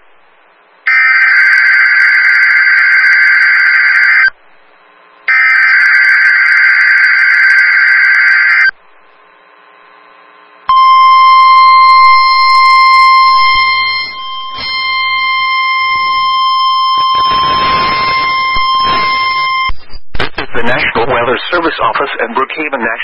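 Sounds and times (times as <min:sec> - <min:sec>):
steady alarm tone: 0:00.9 - 0:04.3, 0:05.3 - 0:08.8, 0:10.7 - 0:19.8
shrill warbling digital burst: 0:11.0 - 0:19.7.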